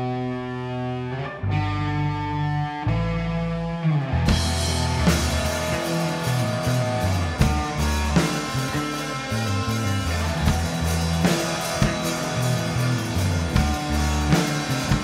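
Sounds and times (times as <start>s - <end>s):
electric guitar and bass: 0.0s - 15.0s
rock band playing: 0.0s - 15.0s
drum kit with cymbals: 4.3s - 15.0s.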